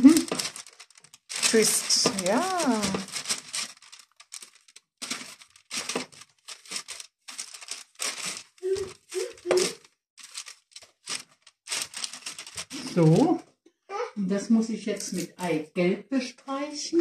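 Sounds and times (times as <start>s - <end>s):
baking parchment rustling: 0.0s - 13.4s.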